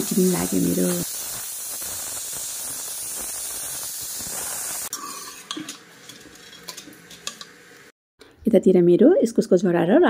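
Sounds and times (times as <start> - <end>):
steam hissing from pressure cooker: 0.0 - 5.8
metal ladle scraping in pot: 4.9 - 7.5.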